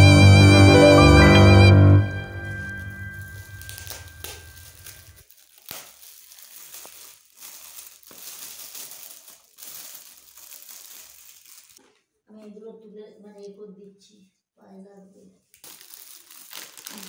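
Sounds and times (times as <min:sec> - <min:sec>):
metallic gift wrap crinkling: 0:02.3 - 0:12.0, 0:15.5 - 0:17.0.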